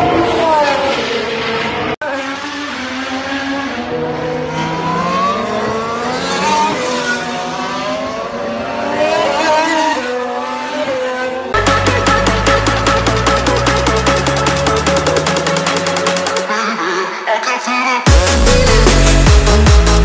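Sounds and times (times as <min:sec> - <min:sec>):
racing car engines passing: 0:00.0 - 0:17.1
electronic music: 0:11.6 - 0:20.0.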